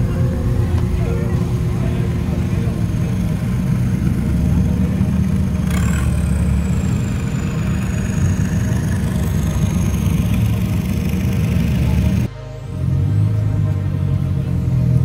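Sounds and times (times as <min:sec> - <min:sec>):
high whine: 0:00.0 - 0:15.0
vehicle engine running: 0:00.0 - 0:15.0.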